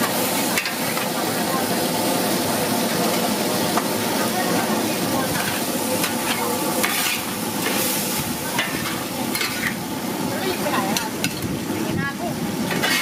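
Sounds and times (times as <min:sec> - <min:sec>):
hot oil sizzling: 0:00.0 - 0:13.0
metal spatulas scraping a wok: 0:05.4 - 0:09.8, 0:12.7 - 0:13.0.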